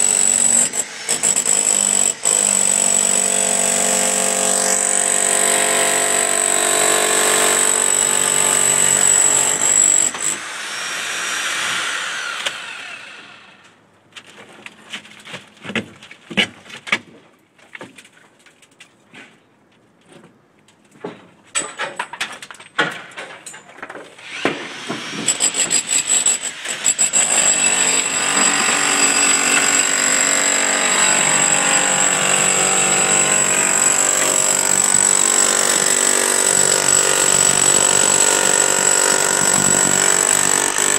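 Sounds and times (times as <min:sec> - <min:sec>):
power chisel hammering: 0:00.0 - 0:12.7, 0:24.3 - 0:40.9.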